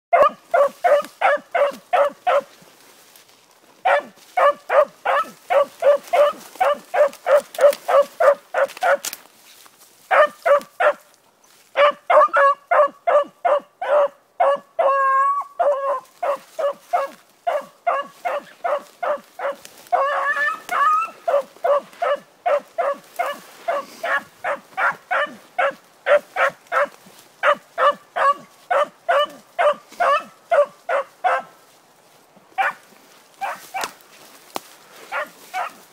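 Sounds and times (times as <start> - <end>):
dog baying with chop barks: 0.1 - 2.5, 3.9 - 9.1, 15.7 - 31.4.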